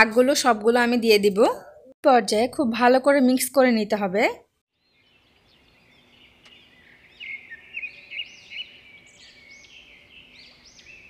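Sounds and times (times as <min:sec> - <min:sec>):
small birds chirping: 0:04.7 - 0:11.0.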